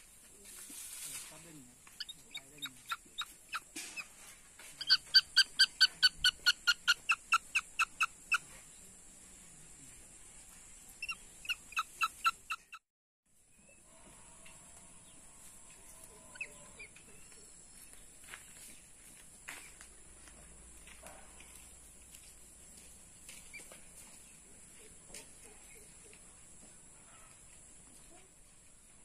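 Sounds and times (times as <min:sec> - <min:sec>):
young bird of prey calling: 0:04.8 - 0:08.5.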